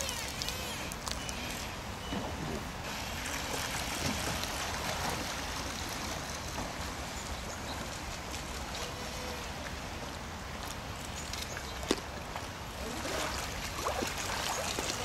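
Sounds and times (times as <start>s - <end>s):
rc boat motor whining: 0.0s - 2.2s.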